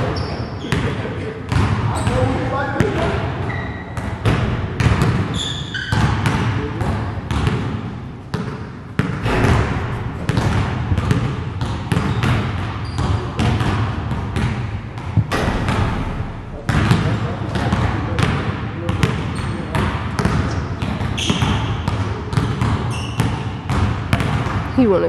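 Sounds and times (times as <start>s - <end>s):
shoe squeaks: 0.0s - 0.9s, 3.4s - 4.0s, 5.3s - 6.2s, 12.0s - 13.5s, 19.3s - 19.8s, 20.5s - 21.8s, 22.8s - 23.6s
basketballs bouncing on gym floor: 0.0s - 25.0s.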